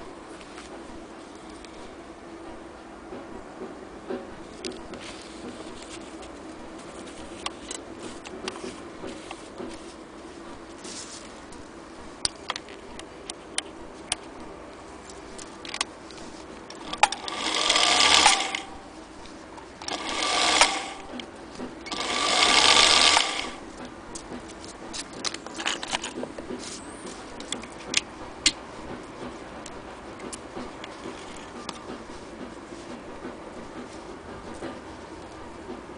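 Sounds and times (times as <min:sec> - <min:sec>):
sewing machine motor running: 0:16.7 - 0:18.9, 0:19.8 - 0:23.8.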